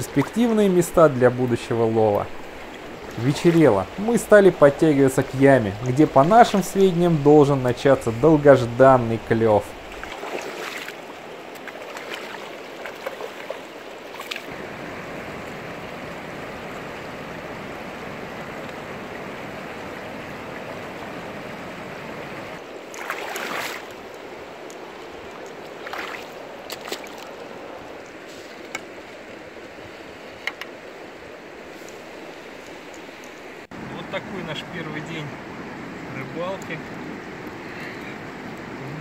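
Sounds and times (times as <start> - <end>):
river rushing over rocks: 0.0 - 28.0.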